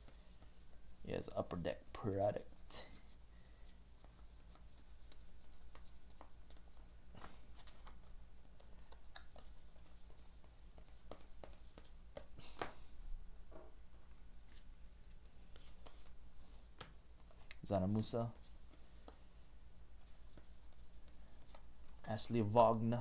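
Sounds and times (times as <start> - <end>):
low electrical hum: 0.0 - 23.0
cards flipping: 4.0 - 12.8, 14.4 - 19.3, 20.0 - 22.1.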